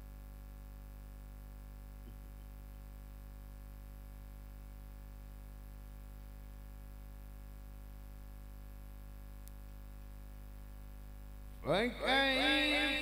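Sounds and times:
electrical hum and hiss: 0:00.0 - 0:13.0
man chanting recitation: 0:11.6 - 0:13.0.

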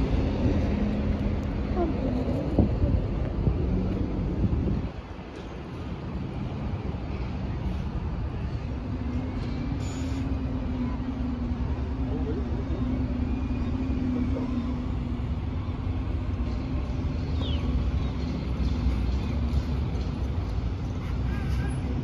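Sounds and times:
bus engine droning: 0:00.0 - 0:22.0
traffic rumble: 0:00.0 - 0:22.0.

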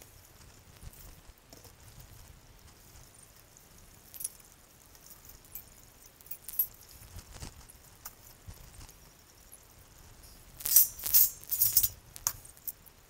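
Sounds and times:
metal parts clinking and knocking: 0:10.6 - 0:12.8.

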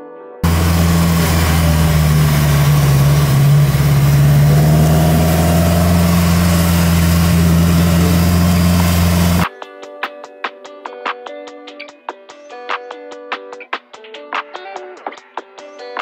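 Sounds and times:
car engine running with deep rumble: 0:00.4 - 0:09.4.

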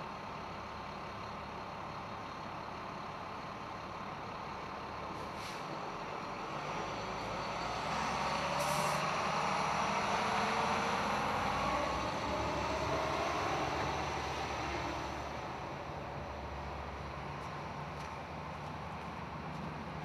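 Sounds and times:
truck passing by: 0:03.9 - 0:20.0
short hiss: 0:05.2 - 0:05.7, 0:08.6 - 0:09.0.

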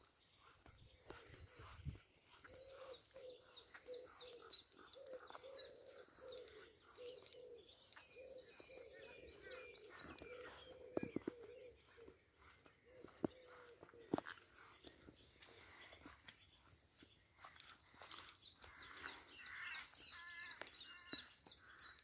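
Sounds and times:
songbirds chirping and trilling: 0:00.0 - 0:22.0
bird cooing: 0:02.3 - 0:14.7.

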